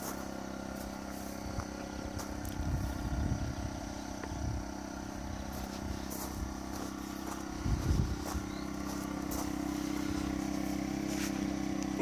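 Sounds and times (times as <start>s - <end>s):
electric pump droning: 0.0s - 12.0s
wind rumble on microphone: 1.4s - 6.6s, 7.4s - 8.7s.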